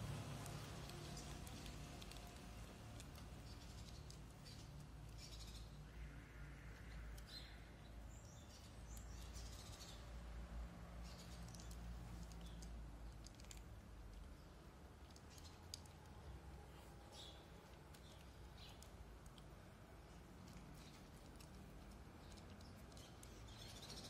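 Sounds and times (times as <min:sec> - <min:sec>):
cats chewing dry kibble: 0:00.0 - 0:05.7, 0:11.0 - 0:24.0
low outdoor hum: 0:00.0 - 0:24.0.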